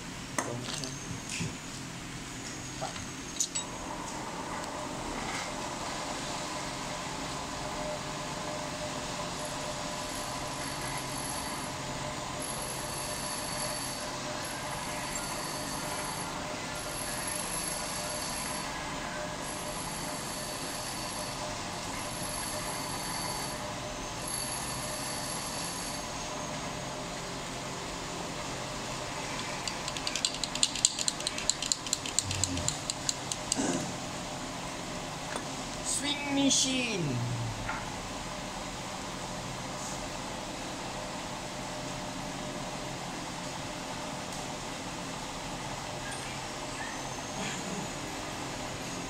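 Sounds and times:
machinery humming: 3.5s - 35.2s.

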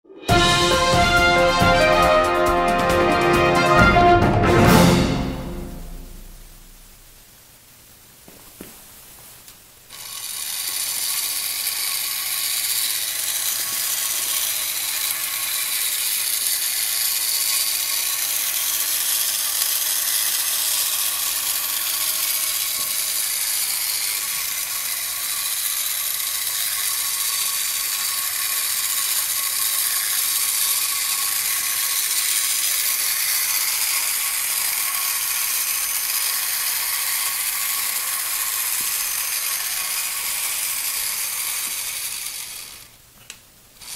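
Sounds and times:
toy robot motor clattering: 9.9s - 43.0s.

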